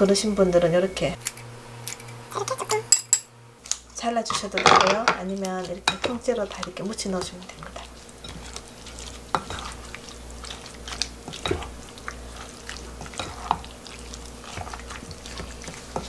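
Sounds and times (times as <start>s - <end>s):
wet sticky squelching: 6.5s - 16.0s.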